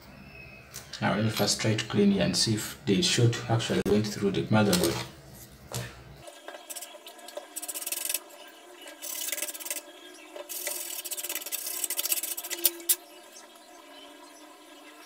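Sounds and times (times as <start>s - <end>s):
toothbrush scrubbing circuit board: 6.6s - 8.3s, 9.0s - 13.4s.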